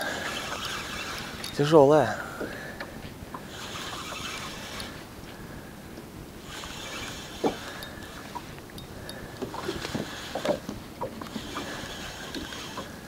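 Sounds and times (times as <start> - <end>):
fishing reel whirring: 0.0 - 1.9, 3.3 - 5.1, 6.4 - 13.0.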